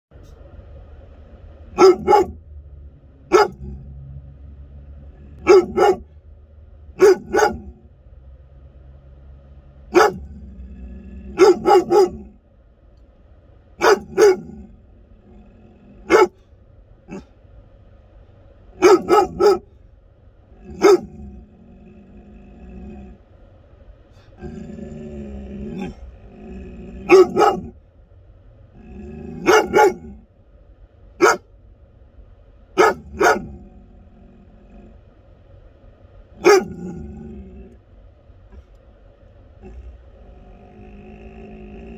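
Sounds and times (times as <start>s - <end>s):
low steady rumble: 0.1s - 41.9s
dog barking: 1.7s - 2.4s, 3.2s - 3.8s, 5.4s - 6.1s, 7.0s - 7.9s, 9.9s - 10.4s, 11.3s - 12.4s, 13.8s - 14.7s, 16.0s - 16.4s, 17.1s - 17.3s, 18.8s - 19.7s, 20.7s - 21.4s, 27.0s - 27.8s, 29.3s - 30.2s, 31.2s - 31.5s, 32.8s - 33.7s, 36.4s - 37.0s.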